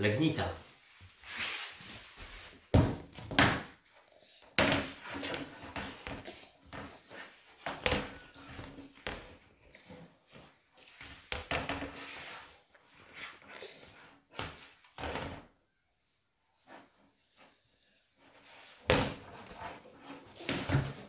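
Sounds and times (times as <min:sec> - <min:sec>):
knocks and thumps on rubber mat: 0:02.7 - 0:03.8.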